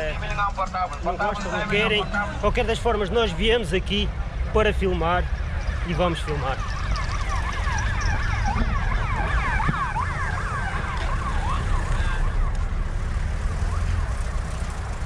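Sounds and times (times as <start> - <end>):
low rumble of traffic: 0.0 - 15.0
ambulance siren yelping: 5.6 - 15.0.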